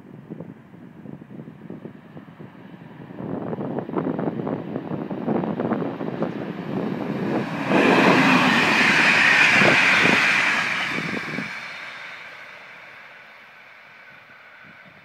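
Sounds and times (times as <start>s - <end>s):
train wheels rushing on rails: 3.0s - 15.0s.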